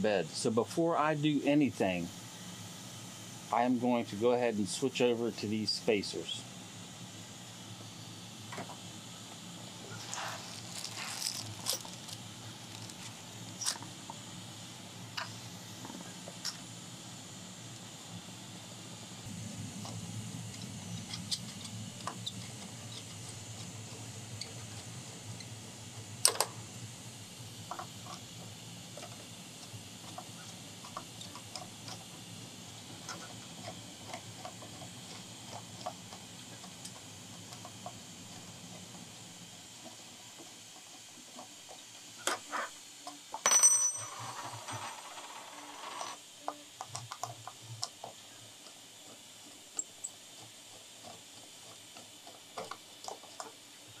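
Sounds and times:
metal clatter with ringing: 43.5 - 44.8.

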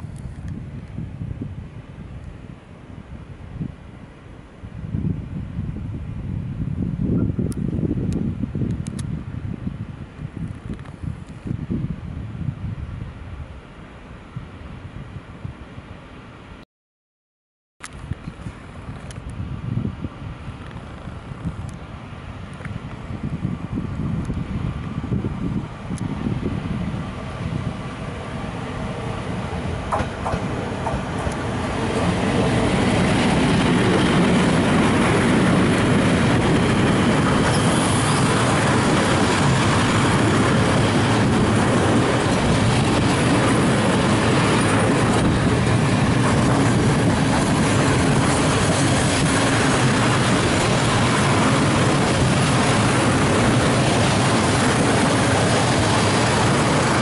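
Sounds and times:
freight train wheels rumbling on rails: 22.6 - 57.0.

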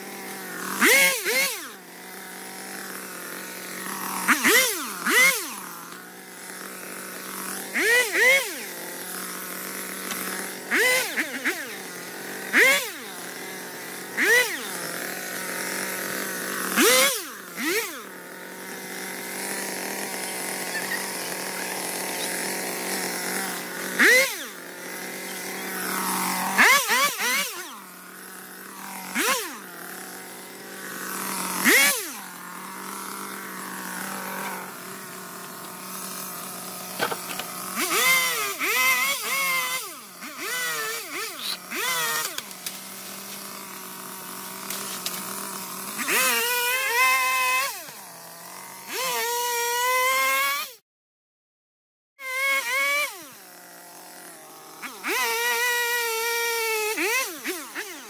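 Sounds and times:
chainsaw idling and revving: 0.0 - 50.8, 52.2 - 58.0.

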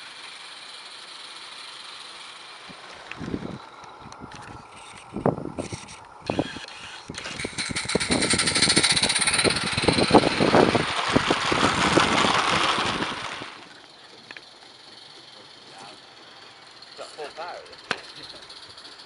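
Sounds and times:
model train wagons clattering: 0.0 - 19.0
wheels clicking over rail joints: 0.0 - 19.0.

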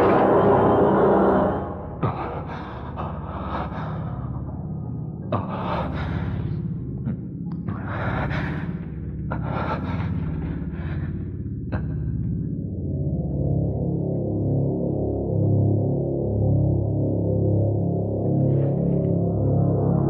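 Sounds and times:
low steady drone: 0.0 - 20.0
man breathing hard: 1.8 - 12.3.

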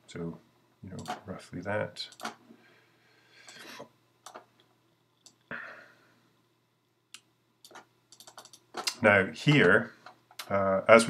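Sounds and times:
computer mouse clicks: 2.1 - 2.4, 4.2 - 4.5, 7.2 - 9.7.

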